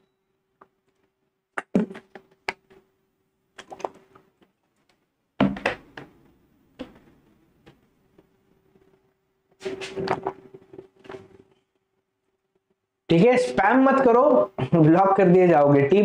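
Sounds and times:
plastic water bottle handling: 3.6s - 6.1s.

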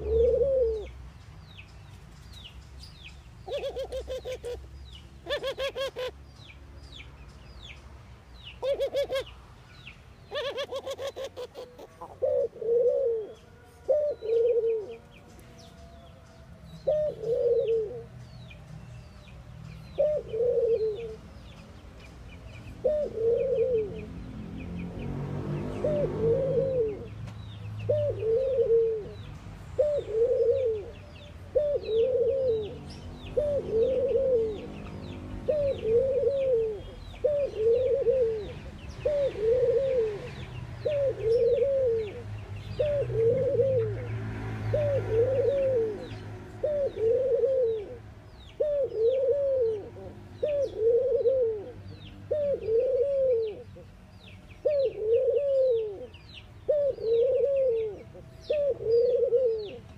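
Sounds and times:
dove cooing: 0.0s - 1.0s, 3.4s - 6.2s, 8.6s - 9.3s, 10.3s - 15.2s, 16.8s - 18.2s, 20.0s - 21.3s, 22.8s - 24.2s, 25.7s - 27.2s, 27.9s - 53.8s, 54.6s - 59.9s.

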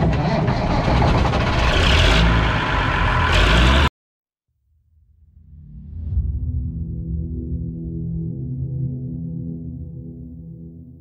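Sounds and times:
combine harvester engine running: 0.0s - 3.9s.

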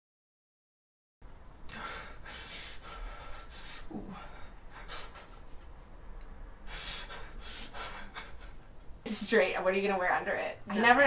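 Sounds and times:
man breathing heavily: 1.6s - 5.9s, 6.6s - 8.9s.

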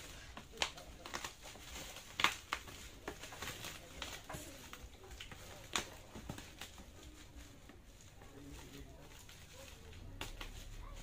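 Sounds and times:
bubble wrap crinkling: 0.0s - 11.0s
bubble wrap popping: 0.0s - 11.0s.

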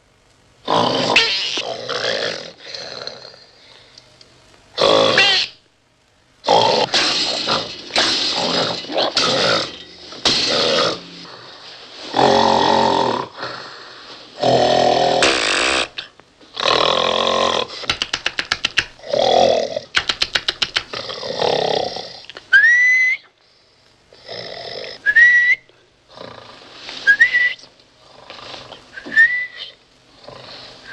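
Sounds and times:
man snoring loudly: 0.6s - 3.6s, 4.8s - 5.2s, 6.4s - 11.5s, 12.1s - 16.0s, 16.6s - 17.8s, 21.0s - 22.2s, 24.2s - 25.2s
short rising whistle: 27.1s - 27.6s.

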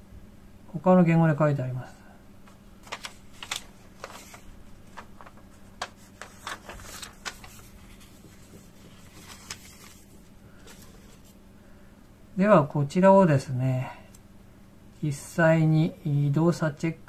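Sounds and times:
faint low hum: 0.0s - 17.0s
paper rustling and crackling: 2.5s - 11.4s.

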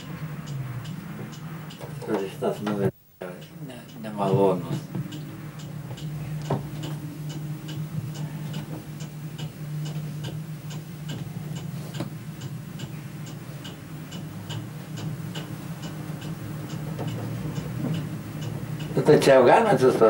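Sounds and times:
low steady hum: 0.0s - 20.0s
steady ticking: 0.0s - 20.0s.

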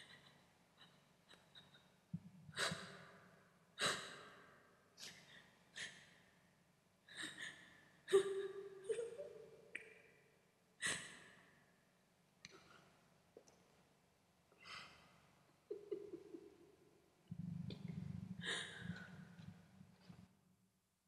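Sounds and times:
person breathing heavily: 17.6s - 20.0s.

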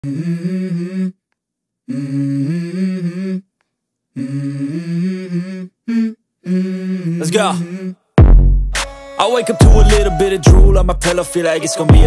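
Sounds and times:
person humming a melody: 0.0s - 1.2s, 1.9s - 3.5s, 4.2s - 8.0s, 9.2s - 12.0s.

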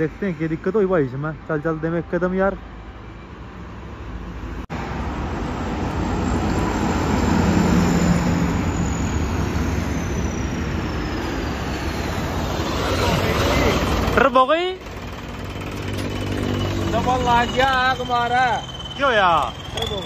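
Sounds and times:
passing road traffic: 0.0s - 20.0s
tractor diesel engine: 3.5s - 20.0s
thin high whine: 7.7s - 20.0s.

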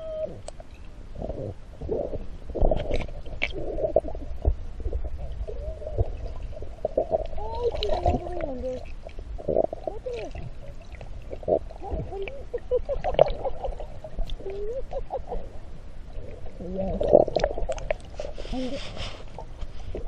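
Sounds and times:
muffled voice underwater: 0.0s - 0.5s, 5.4s - 6.2s, 7.0s - 10.6s, 11.4s - 13.5s, 14.3s - 15.6s, 16.4s - 17.4s
water gurgling: 0.0s - 18.6s.

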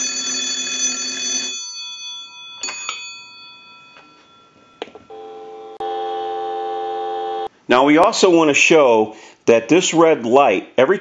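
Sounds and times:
telephone bells ringing: 0.0s - 7.5s
light bell strikes: 2.4s - 5.1s
dial tone: 5.1s - 7.5s.

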